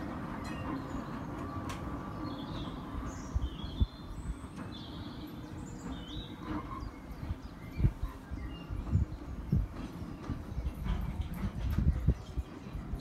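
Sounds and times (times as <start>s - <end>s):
small birds chirping: 0.4s - 13.0s.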